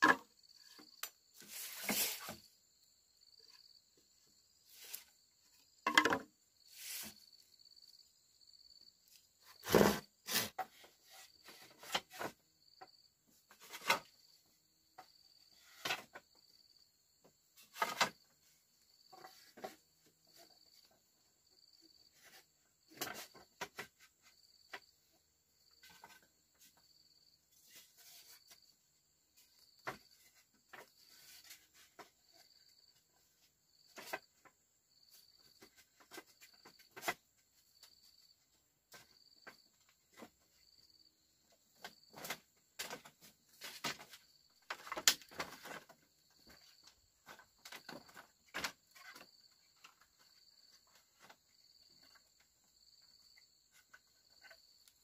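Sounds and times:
crickets chirping: 0.0s - 55.0s
insect hiss: 0.1s - 5.8s, 6.6s - 13.0s.

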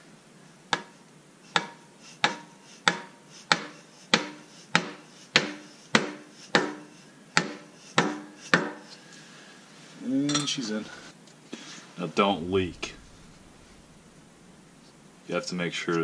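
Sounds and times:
hammer tapping metal pipe: 0.7s - 0.9s, 1.5s - 8.8s.

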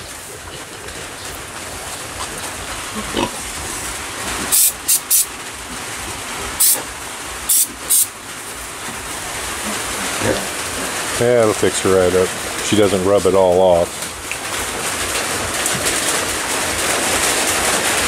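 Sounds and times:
aerosol spray hissing: 4.5s - 5.3s, 6.6s - 6.8s, 7.5s - 8.1s.

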